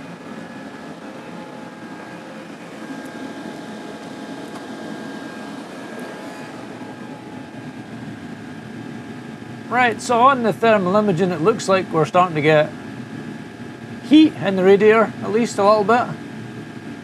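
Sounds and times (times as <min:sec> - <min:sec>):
air heater whirring rush: 0:00.0 - 0:17.0.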